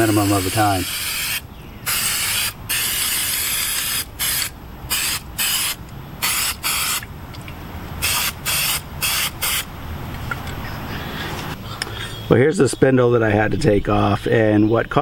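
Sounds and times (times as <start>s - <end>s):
aerosol can spraying: 0.0s - 7.0s, 8.0s - 9.7s.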